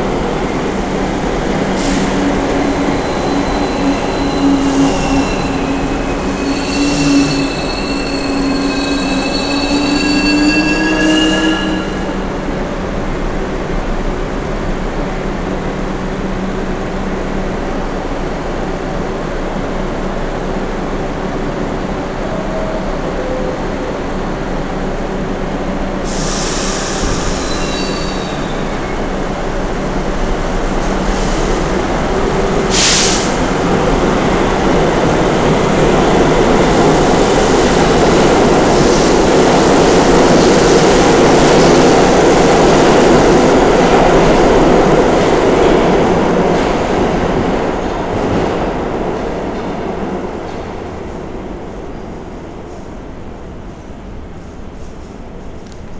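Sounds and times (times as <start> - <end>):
subway train wheels on rail: 0.0 - 55.9
high wheel squeal: 1.8 - 12.3, 26.1 - 29.1.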